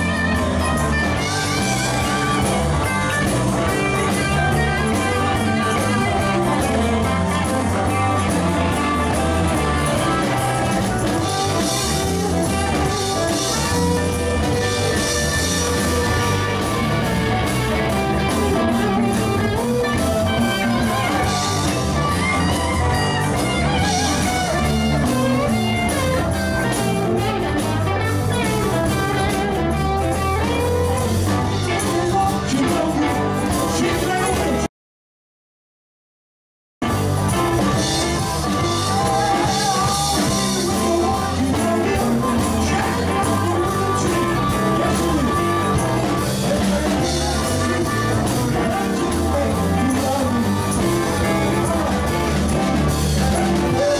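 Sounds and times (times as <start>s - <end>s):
electric guitar: 0.0s - 34.7s, 36.8s - 53.9s
rock band playing blues-rock: 0.0s - 34.7s, 36.8s - 53.9s.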